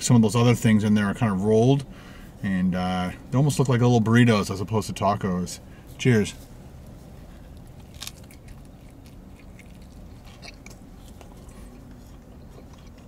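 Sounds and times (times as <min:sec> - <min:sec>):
man chewing food: 0:06.7 - 0:13.0
small crunches and mouth clicks: 0:06.8 - 0:13.0.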